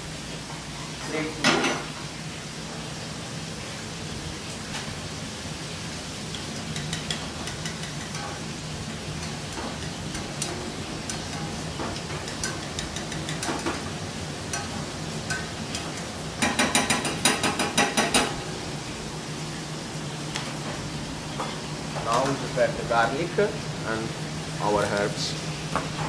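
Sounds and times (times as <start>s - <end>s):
spatula stirring and scraping pan: 6.7s - 18.3s.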